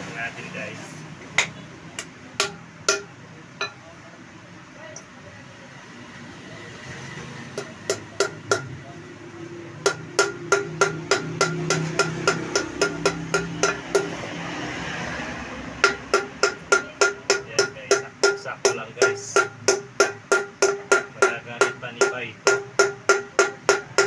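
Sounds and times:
hammer tapping on metal: 1.4 - 3.8, 7.5 - 8.8, 9.8 - 14.3, 15.8 - 24.0.

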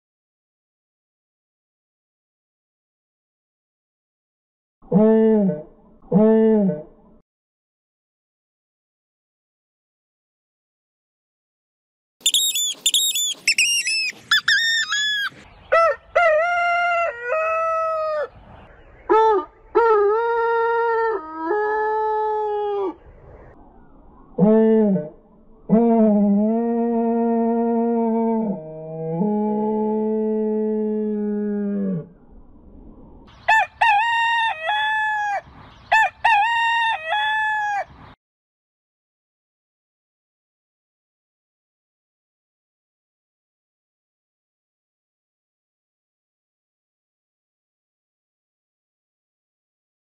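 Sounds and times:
rooster crow at changing speeds: 12.2 - 28.3, 33.2 - 38.2
rooster crowing: 14.3 - 18.4, 33.4 - 38.0.

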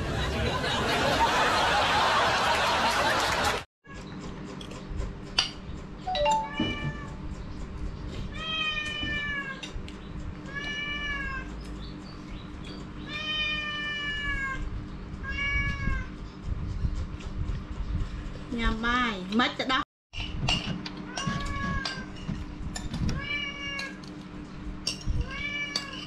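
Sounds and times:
cat meowing: 8.3 - 9.6, 10.4 - 11.5, 13.1 - 16.1, 23.2 - 24.0, 25.2 - 26.0.

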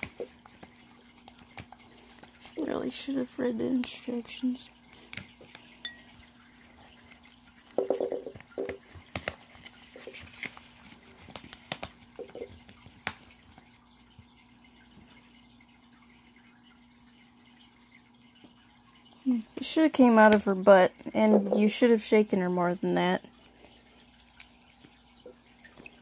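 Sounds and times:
metal spoon scraping glass bowl: 0.0 - 4.4, 6.8 - 8.9, 23.3 - 26.0
faint steady hum: 0.0 - 26.0.

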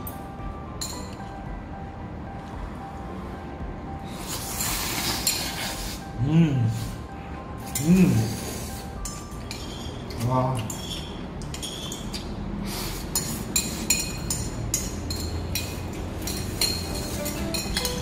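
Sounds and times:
cutlery clinking on plates: 9.0 - 12.3, 13.1 - 18.0.

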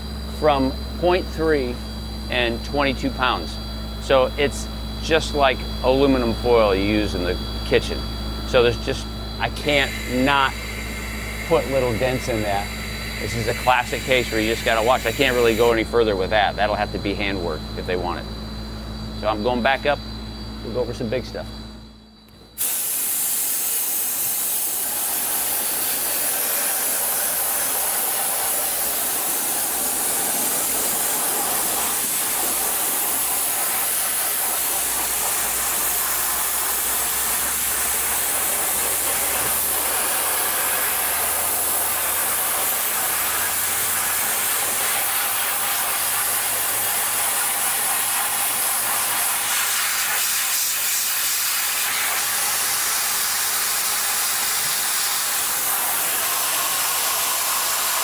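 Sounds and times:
dry ice blasting hiss: 7.1 - 16.2, 22.4 - 58.0.

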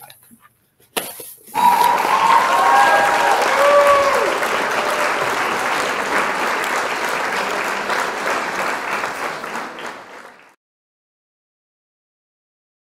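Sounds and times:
crowd applauding: 1.5 - 10.6.

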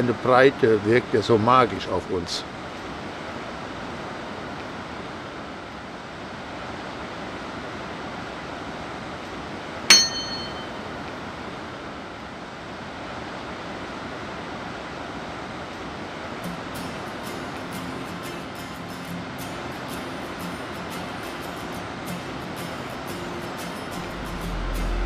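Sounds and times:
bell-like ding: 9.9 - 10.8.

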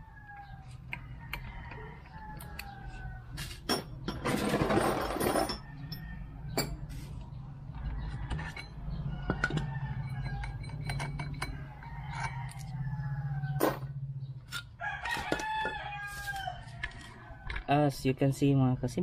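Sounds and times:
rattling scrape: 3.4 - 5.6
metal tools clinking: 3.4 - 6.8, 8.3 - 12.7.

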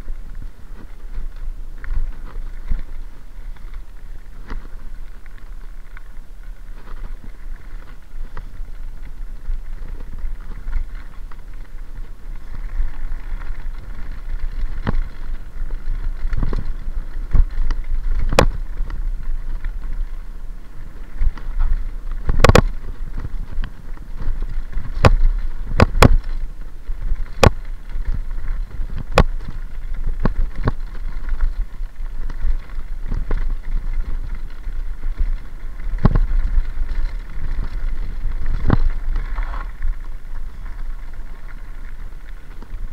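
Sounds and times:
bike knocking and rattling: 0.0 - 42.9
tyres rumbling on gravel: 0.0 - 42.9
wind: 0.0 - 42.9.

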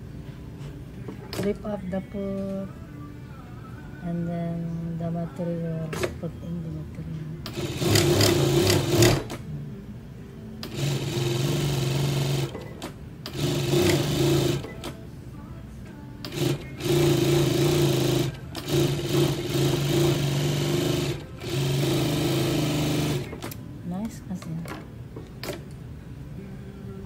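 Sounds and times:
sewing machine stitching: 7.5 - 9.4, 10.6 - 14.9, 16.2 - 23.6.

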